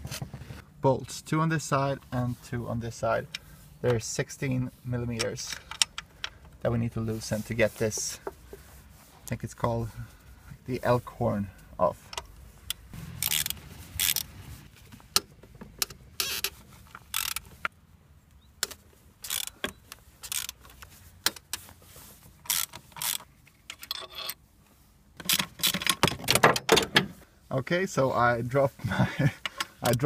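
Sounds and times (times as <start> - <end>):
wrench ratcheting clicks: 12.7 - 14.3, 16.2 - 17.5, 19.2 - 19.6, 20.2 - 20.6, 22.5 - 24.0.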